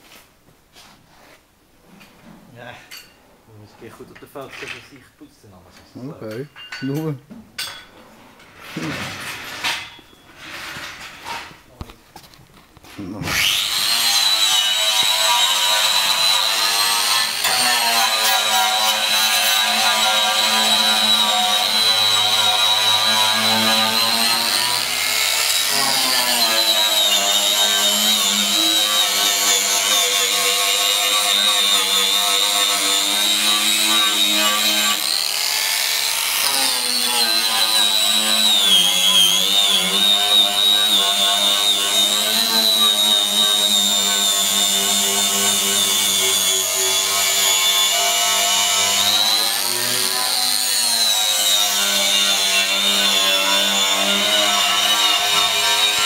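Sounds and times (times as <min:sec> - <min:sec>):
grinder whining on metal: 0:13.0 - 0:56.0.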